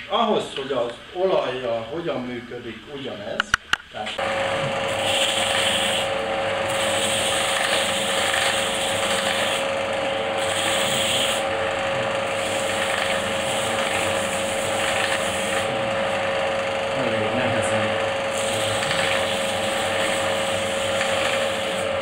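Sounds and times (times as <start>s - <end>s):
electric motor whining: 4.2s - 22.0s
bearing ring rubbing and rasping: 4.9s - 9.7s, 10.4s - 15.7s.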